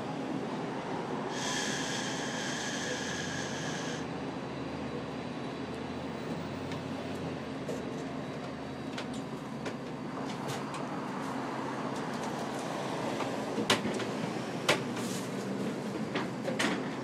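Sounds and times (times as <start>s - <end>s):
city street rumble: 0.0s - 17.0s
high squeal: 1.3s - 4.1s.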